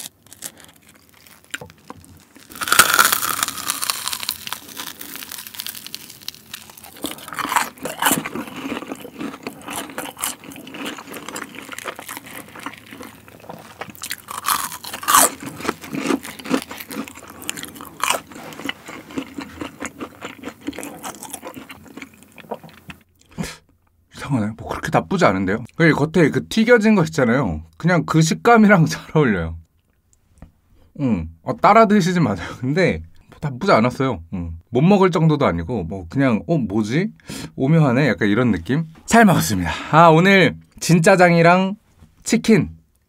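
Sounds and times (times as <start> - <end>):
loud crunch of fried crust: 0.0 - 23.0
crunchy chewing: 0.0 - 23.1.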